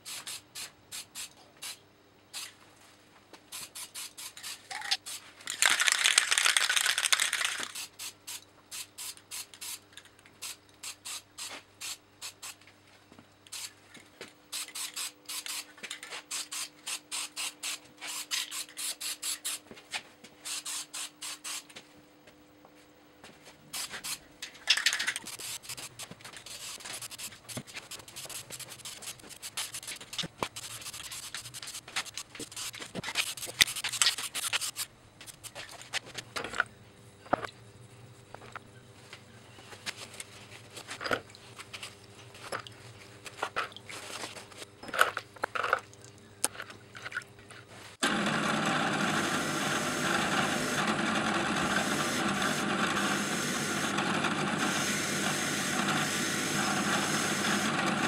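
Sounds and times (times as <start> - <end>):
spray-paint can hissing: 0.0 - 1.8, 3.5 - 9.8, 10.4 - 12.6, 13.5 - 13.7, 14.5 - 15.7, 16.3 - 19.6, 20.4 - 21.7, 23.8 - 24.2, 25.0 - 35.6, 51.6 - 54.0, 54.6 - 57.8.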